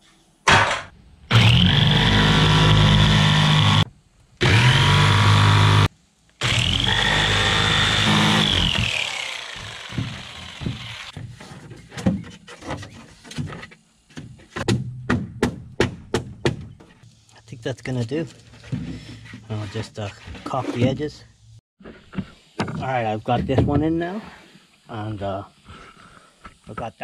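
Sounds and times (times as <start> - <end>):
jigsaw cutting panel: 1.3 - 3.8, 4.4 - 11.1
motor winding down whine: 1.3 - 3.8, 4.4 - 11.1.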